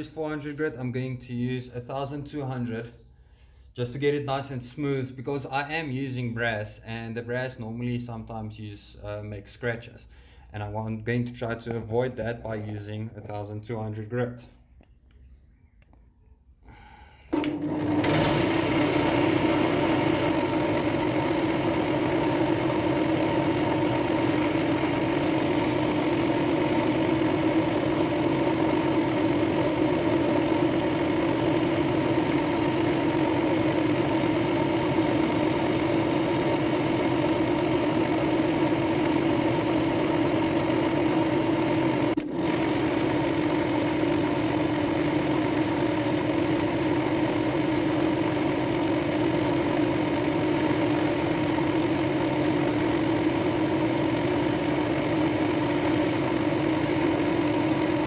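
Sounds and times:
drill motor running: 0:17.3 - 0:58.0.

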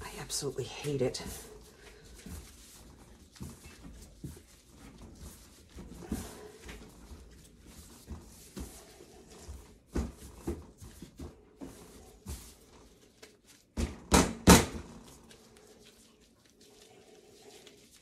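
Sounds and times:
dough thumping on metal table: 0:13.8 - 0:14.9.

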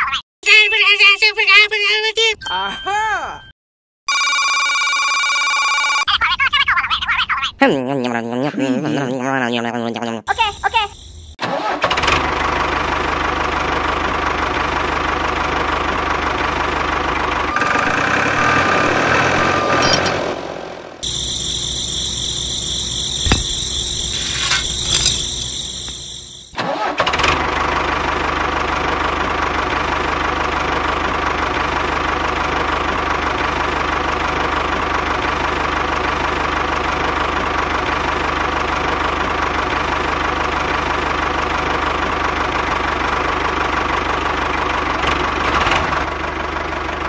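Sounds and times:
tractor engine idling: 0:12.4 - 0:18.4, 0:21.0 - 0:26.6, 0:27.6 - 0:47.0
steady high whine: 0:21.0 - 0:26.5.

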